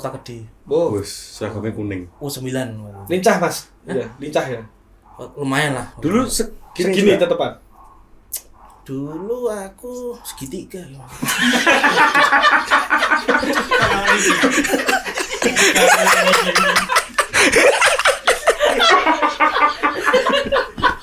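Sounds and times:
men laughing hard: 0:11.1 - 0:21.0.

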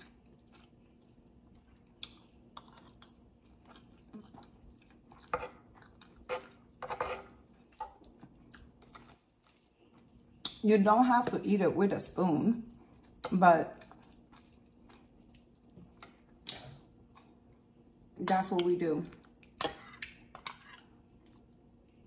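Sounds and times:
chewing food close up: 0:00.0 - 0:06.7, 0:07.5 - 0:10.6, 0:12.7 - 0:18.0
metal spoon scraping a plate: 0:06.3 - 0:07.4.

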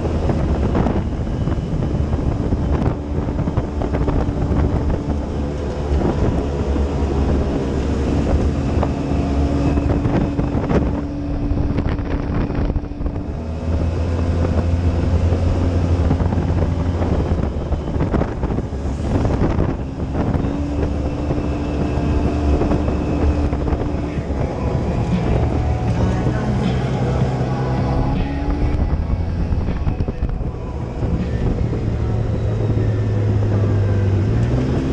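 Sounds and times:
utility vehicle engine drone: 0:00.0 - 0:34.9
wind buffeting microphone: 0:00.0 - 0:34.9.

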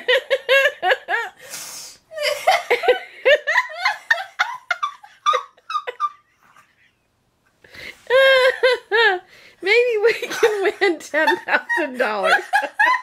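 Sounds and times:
woman laughing hard: 0:00.0 - 0:01.4, 0:02.1 - 0:06.8, 0:08.1 - 0:09.3, 0:10.1 - 0:13.0.

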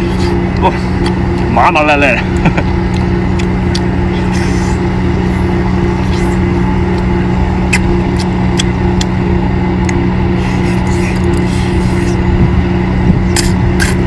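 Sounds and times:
loud engine drone: 0:00.0 - 0:14.0
person slurping food: 0:04.1 - 0:06.4, 0:10.4 - 0:12.3, 0:13.3 - 0:14.0.

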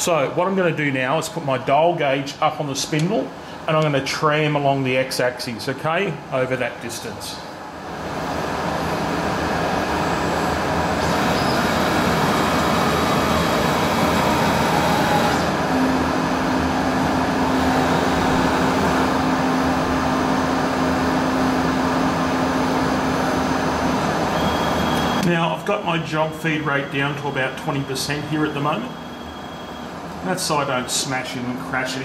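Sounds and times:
steady low hum: 0:00.0 - 0:32.0
milling machine running: 0:07.9 - 0:25.3.

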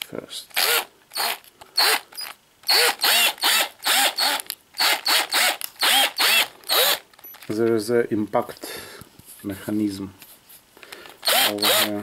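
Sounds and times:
cordless drill motor bursts: 0:00.6 - 0:07.0, 0:11.2 - 0:12.0.

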